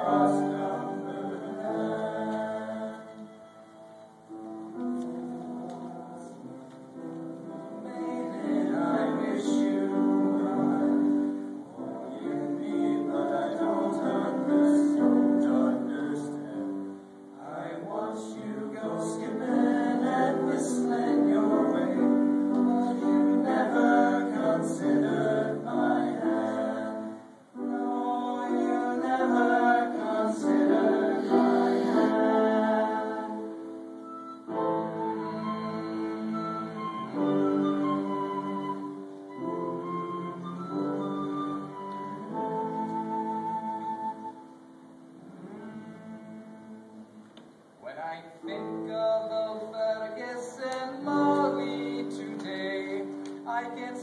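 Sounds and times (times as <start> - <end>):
male choir singing: 0.0 - 3.4, 5.2 - 6.6, 7.5 - 33.7, 48.5 - 54.0
flute playing: 0.0 - 6.6, 18.5 - 47.0.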